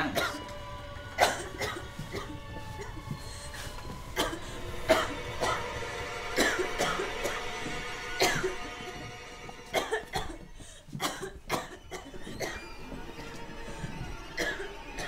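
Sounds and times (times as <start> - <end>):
woman coughing: 0.0 - 0.5, 1.2 - 2.3, 4.2 - 5.6, 6.4 - 7.4, 8.2 - 8.6, 9.7 - 12.6, 14.4 - 15.0
film score with held tones: 0.0 - 15.0.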